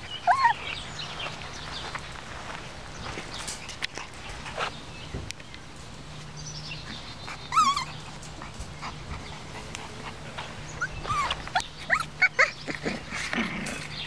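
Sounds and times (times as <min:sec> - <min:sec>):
puppies whining: 0:00.0 - 0:01.1, 0:07.2 - 0:13.9.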